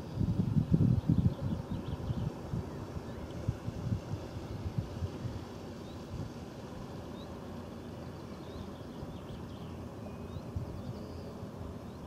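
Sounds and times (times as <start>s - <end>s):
wind buffeting microphone: 0.0s - 7.3s, 8.4s - 12.0s
faint bird chirps: 7.1s - 12.0s.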